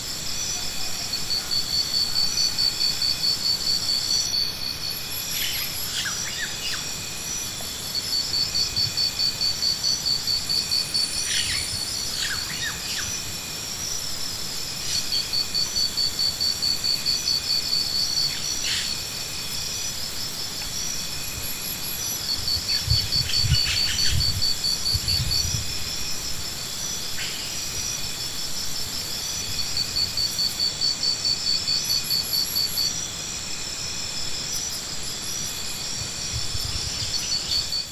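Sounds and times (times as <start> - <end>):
insects trilling: 0.0 - 37.9.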